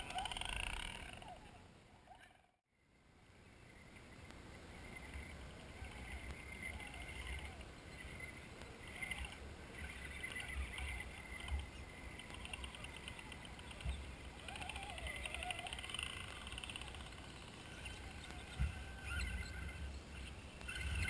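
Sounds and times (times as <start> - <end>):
electric motors whining: 4.9 - 21.0.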